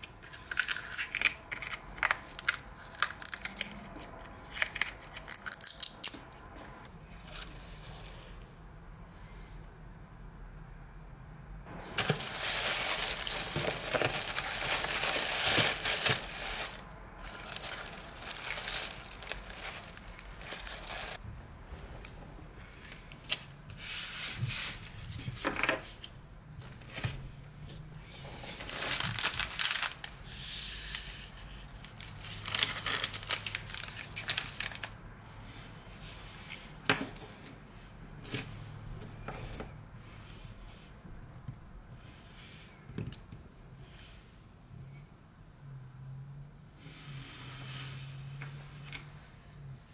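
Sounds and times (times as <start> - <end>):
tissue paper crumpling: 11.8 - 21.2, 28.6 - 30.2, 32.1 - 35.0.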